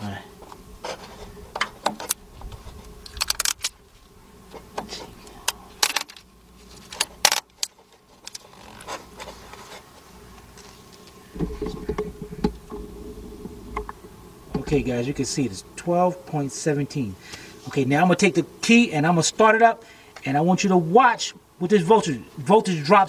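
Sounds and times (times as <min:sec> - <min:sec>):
steady electrical buzz: 0:00.0 - 0:23.0
low hum: 0:08.6 - 0:16.8.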